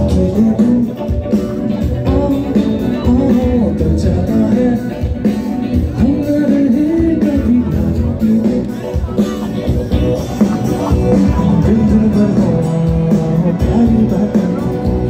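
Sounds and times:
live rock music: 0.0 - 15.0
person singing: 0.0 - 15.0.

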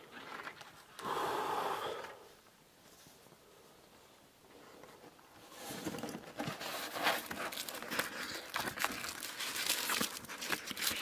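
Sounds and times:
paper rustling and crinkling: 4.8 - 11.0.

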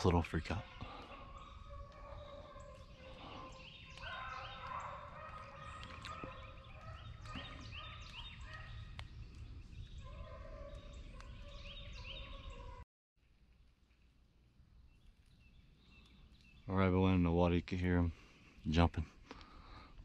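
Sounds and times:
low long bird calls: 0.0 - 16.8
birds chirping: 0.0 - 20.0.

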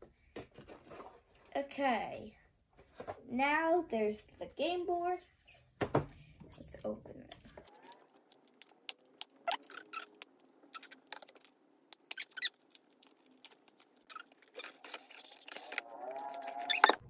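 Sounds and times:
plastic shrink wrap crackling: 7.2 - 15.8
small squeaks: 9.2 - 17.0.

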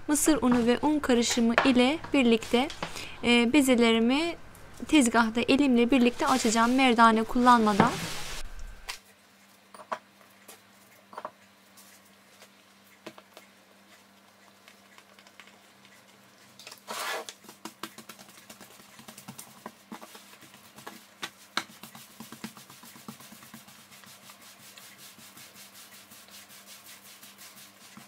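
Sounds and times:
faint steady hum: 0.0 - 16.8
dough rubbing on mat: 2.1 - 3.0, 5.7 - 8.4, 16.9 - 28.0
fingers tapping dough: 17.4 - 24.2.

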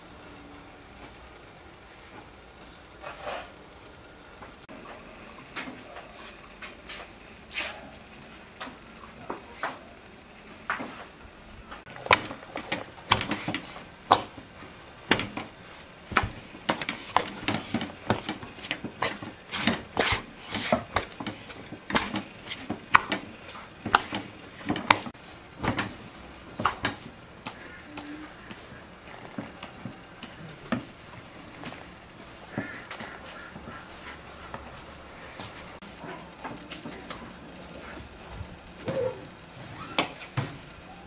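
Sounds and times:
dough slapping in metal bowl: 11.9 - 27.8.

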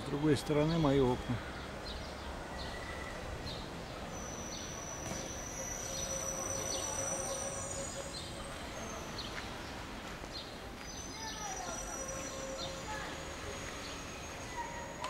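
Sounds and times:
steady background noise: 0.0 - 15.0
small birds chirping: 0.4 - 15.0
thin high whistle: 4.2 - 8.2, 11.1 - 15.0.

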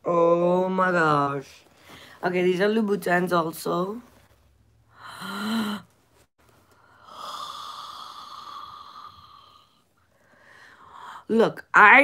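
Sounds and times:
long breathy exhale: 6.8 - 11.2.

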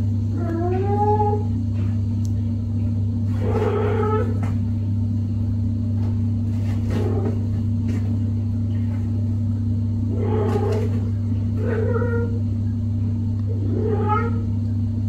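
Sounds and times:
low hum: 0.0 - 15.0
cat meowing: 0.4 - 1.5, 3.4 - 4.4, 11.6 - 12.4, 13.5 - 14.5.

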